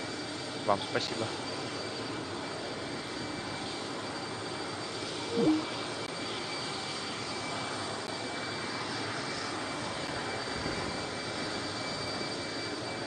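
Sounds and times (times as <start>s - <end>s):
high whine: 5.2s - 6.1s.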